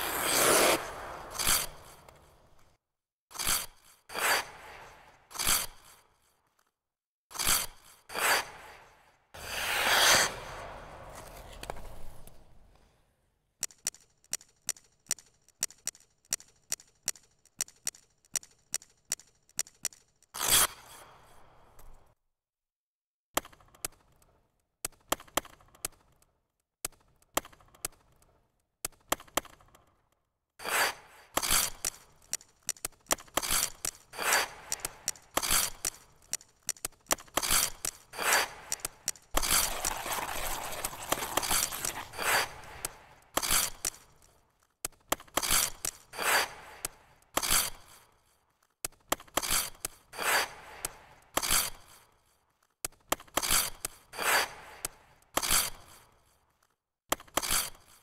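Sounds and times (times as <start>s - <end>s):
skate blades scraping ice: 0.0s - 2.8s, 3.4s - 6.4s, 7.4s - 13.0s, 20.4s - 21.2s, 30.6s - 52.3s, 53.1s - 56.4s, 57.2s - 58.0s.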